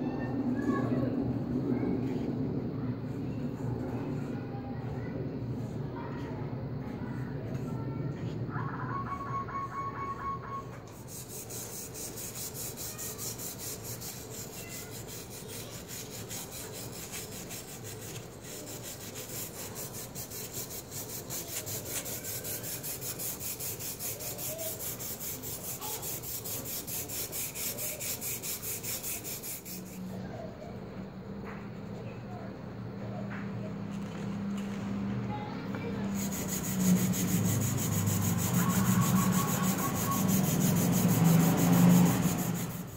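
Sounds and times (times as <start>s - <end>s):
wire brush scrubbing metal blade: 10.9s - 30.1s, 36.1s - 42.9s.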